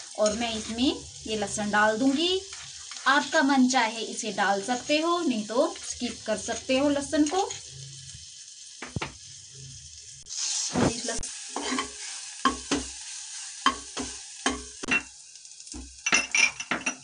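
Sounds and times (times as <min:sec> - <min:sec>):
garlic sizzling in butter: 0:00.0 - 0:17.0
spoon knocking and scraping pan: 0:02.0 - 0:03.3, 0:08.8 - 0:09.2, 0:11.5 - 0:13.0, 0:13.6 - 0:17.0.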